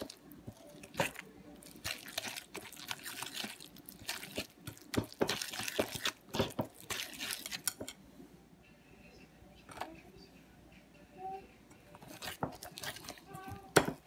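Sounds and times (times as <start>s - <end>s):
whisk beating batter in bowl: 1.7s - 7.9s.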